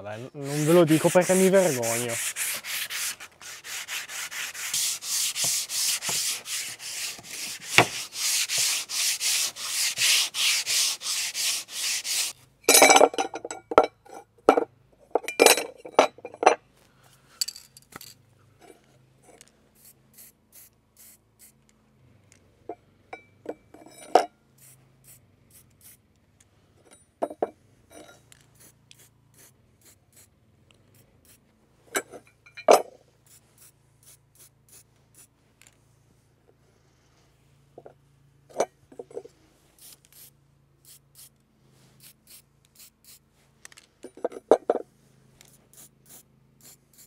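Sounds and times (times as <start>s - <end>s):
sandpaper rubbing on wood: 0.0s - 12.4s, 45.5s - 47.0s.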